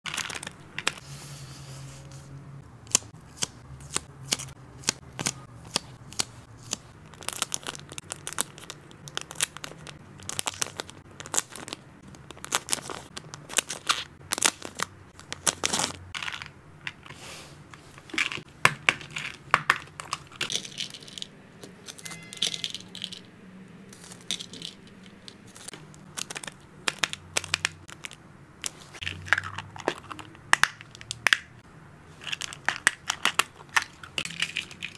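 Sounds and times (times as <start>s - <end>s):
plastic pouches crinkling: 7.0s - 17.1s, 24.0s - 31.5s, 32.1s - 34.9s.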